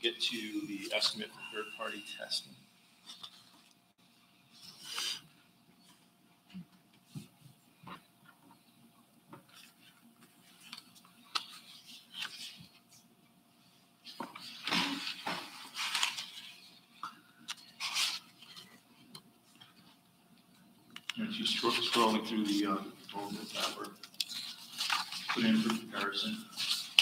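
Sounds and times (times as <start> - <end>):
faint steady hum: 0.0 - 27.0
rustling: 14.0 - 16.9, 17.6 - 18.9, 21.6 - 27.0.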